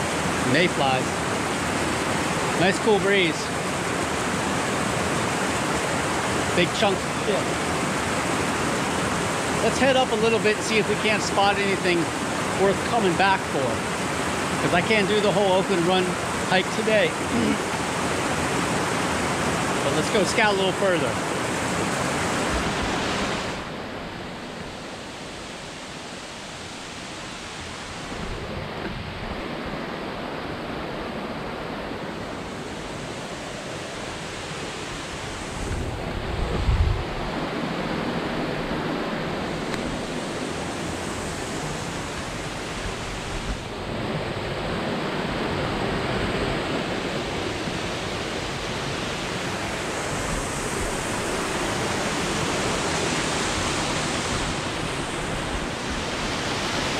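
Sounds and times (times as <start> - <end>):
creek water rushing: 0.0 - 56.9
wind rumble on microphone: 35.3 - 49.0.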